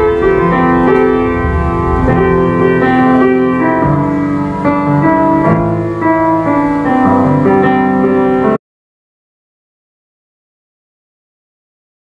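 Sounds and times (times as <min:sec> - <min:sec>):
slow piano chords: 0:00.0 - 0:08.6.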